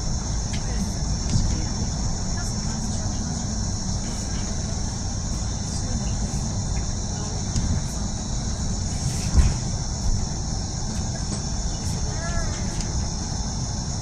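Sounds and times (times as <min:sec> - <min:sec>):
bus engine and road rumble: 0:00.0 - 0:14.0
constant high hiss: 0:00.0 - 0:14.0
thump: 0:09.2 - 0:09.7.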